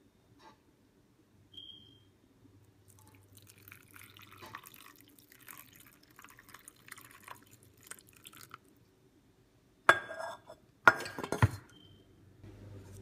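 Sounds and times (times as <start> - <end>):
liquid splashing and dripping: 2.9 - 8.7.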